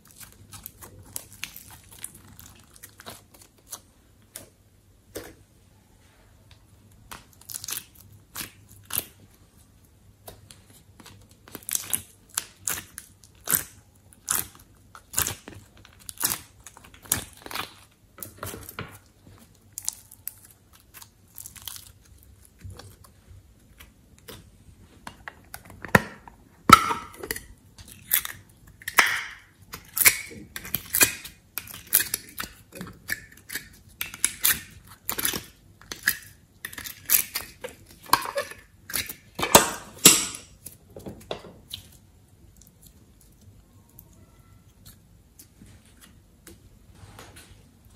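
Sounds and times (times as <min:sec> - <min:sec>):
slime squishing: 0:00.0 - 0:05.4, 0:06.9 - 0:25.9.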